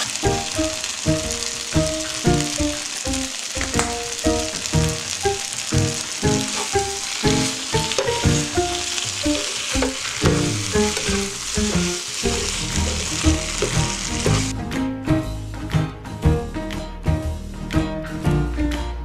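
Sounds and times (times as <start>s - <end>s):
food sizzling in a frying pan: 0.0s - 14.5s
tongs tossing food: 0.0s - 14.5s
background music with steady beat: 13.4s - 19.0s.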